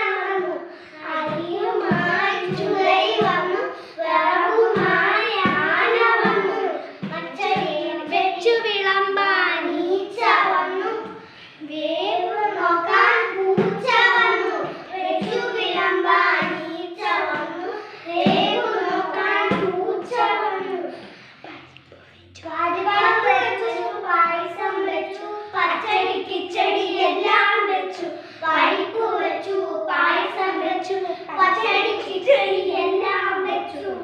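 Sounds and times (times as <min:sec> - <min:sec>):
children singing in unison: 0:00.0 - 0:08.1, 0:12.2 - 0:21.2.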